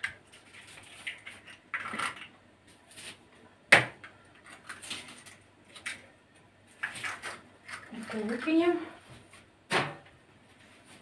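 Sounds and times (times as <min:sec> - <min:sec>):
eggshell crackle: 0:00.0 - 0:03.2, 0:04.3 - 0:08.6.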